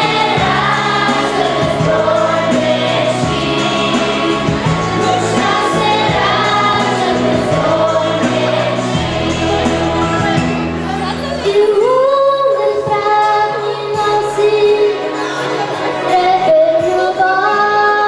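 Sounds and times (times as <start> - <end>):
instrumental accompaniment: 0.0 - 17.4
girls choir singing: 0.0 - 18.0.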